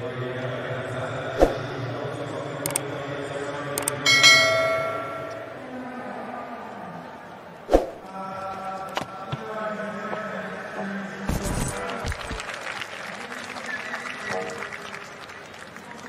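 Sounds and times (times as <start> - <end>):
steady background noise: 0.0 - 16.0
quick clicks: 2.6 - 2.8
bright bell ding: 4.1 - 5.6.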